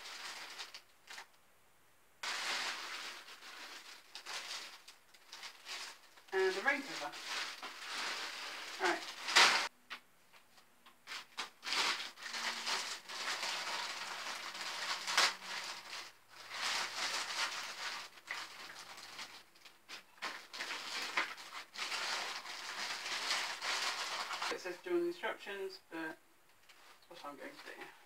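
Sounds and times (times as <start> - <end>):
plastic bags crinkling: 0.0 - 1.3, 2.2 - 9.7, 11.0 - 24.6.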